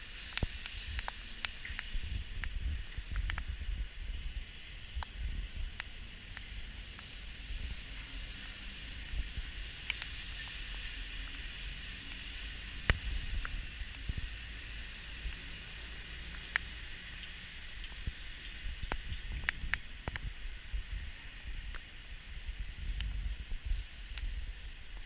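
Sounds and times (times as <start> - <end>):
steady hiss: 0.0 - 25.0
wind buffeting microphone: 0.4 - 6.8, 18.0 - 25.0.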